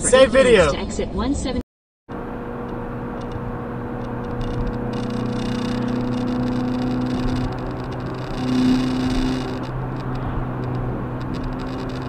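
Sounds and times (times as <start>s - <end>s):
road and tyre noise: 0.0s - 12.0s
low engine hum: 2.1s - 12.0s.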